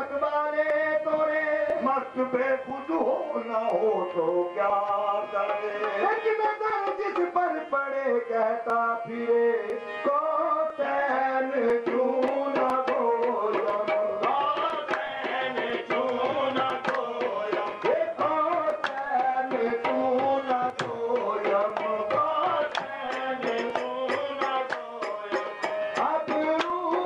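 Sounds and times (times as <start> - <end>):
tabla drums beating: 3.6 - 7.9, 10.1 - 27.0.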